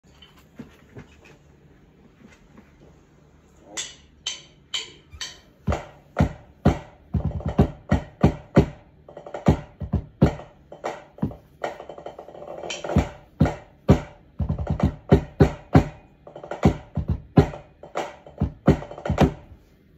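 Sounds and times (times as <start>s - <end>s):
drum corps playing: 5.7s - 19.5s.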